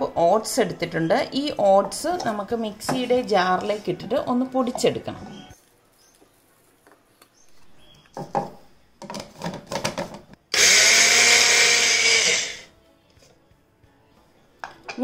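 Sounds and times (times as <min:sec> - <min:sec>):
mixer grinder running: 0:10.5 - 0:12.7.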